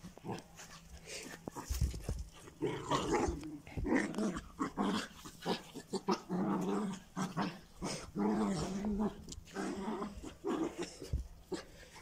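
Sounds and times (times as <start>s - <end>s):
dog growling and whining: 2.6s - 11.8s.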